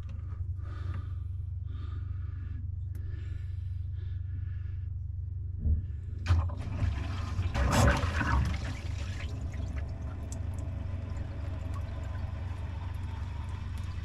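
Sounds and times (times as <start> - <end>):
steady low hum: 0.0 - 14.0
water gurgling through drain pipe: 6.2 - 14.0.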